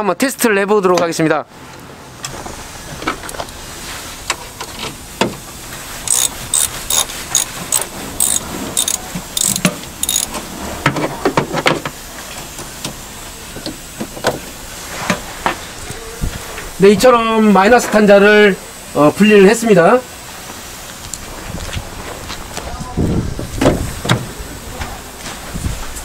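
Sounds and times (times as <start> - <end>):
ratchet wrench clicking: 6.0 - 10.4.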